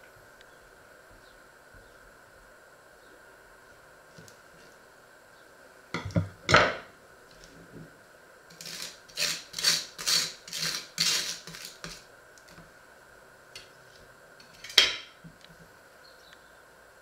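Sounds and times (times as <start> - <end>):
knife scraping butter on toast: 8.5 - 12.0.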